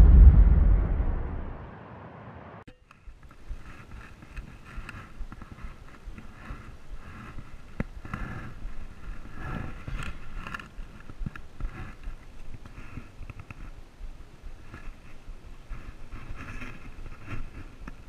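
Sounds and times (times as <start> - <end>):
wind rumble on microphone: 0.0 - 1.8.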